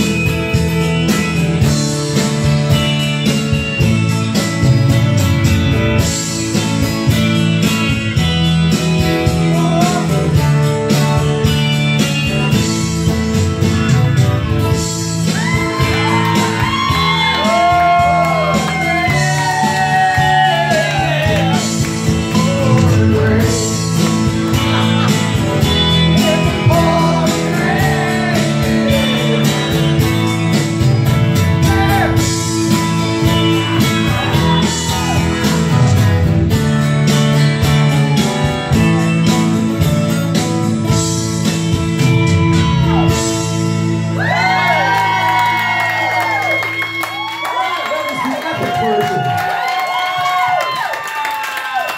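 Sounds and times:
strummed acoustic guitars: 0:00.0 - 0:46.6
man singing: 0:09.2 - 0:11.0, 0:20.9 - 0:30.3.

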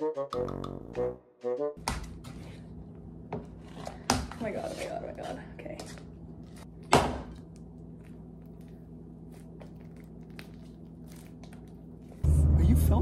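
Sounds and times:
steady low hum: 0:01.8 - 0:13.0
slime squelching in a bowl: 0:07.4 - 0:12.2.

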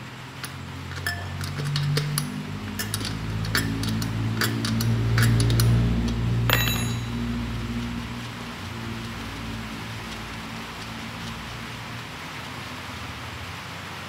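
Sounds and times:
metal tool clicking on wheel rim: 0:00.4 - 0:05.8.

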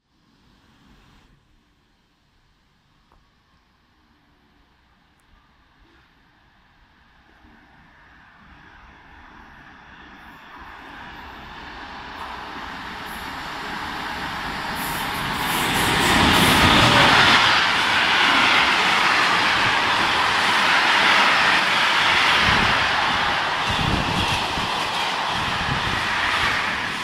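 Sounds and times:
freight train passing: 0:08.4 - 0:27.0.

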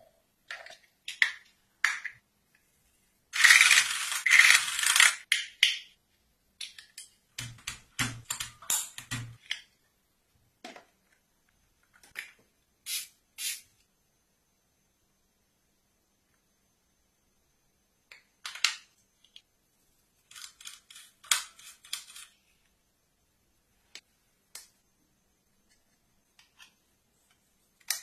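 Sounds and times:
keyboard clacks and thuds: 0:07.4 - 0:09.4
spray bottle hissing: 0:12.8 - 0:13.7.

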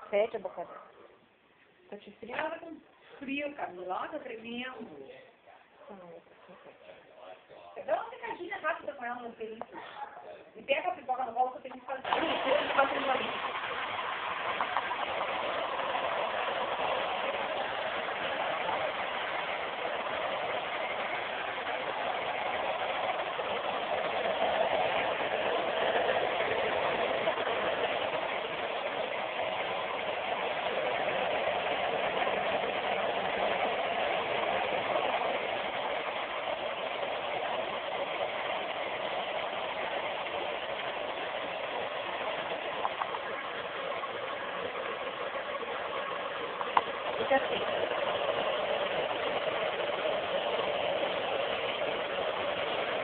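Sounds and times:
hair dryer running: 0:11.8 - 0:53.0.

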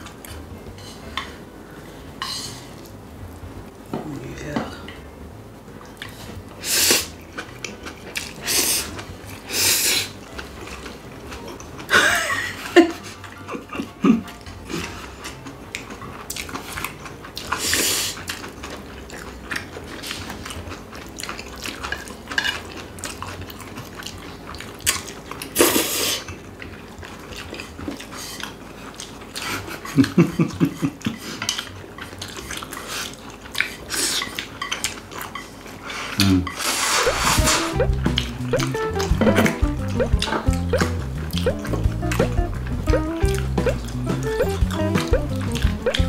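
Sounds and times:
chewing: 0:05.8 - 0:46.0
slurping noodles: 0:25.4 - 0:26.3, 0:35.8 - 0:38.0.

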